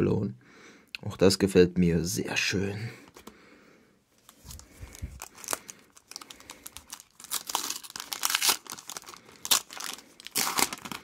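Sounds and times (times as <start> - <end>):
wrapper crinkling and tearing: 4.2 - 11.0.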